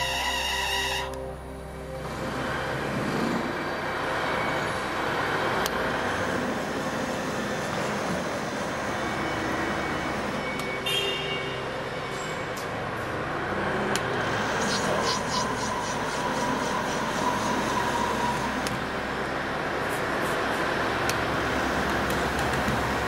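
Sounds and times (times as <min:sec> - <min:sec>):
metal lathe running: 0:11.7 - 0:23.0.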